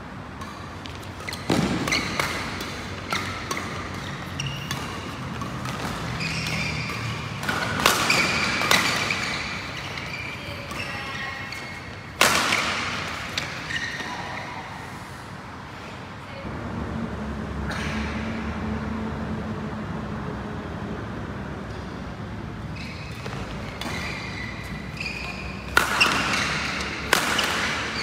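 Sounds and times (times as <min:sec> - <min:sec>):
rackets striking shuttlecock: 0:00.4 - 0:13.7, 0:23.1 - 0:28.0
shoes squeaking on court: 0:00.4 - 0:14.7, 0:21.6 - 0:28.0.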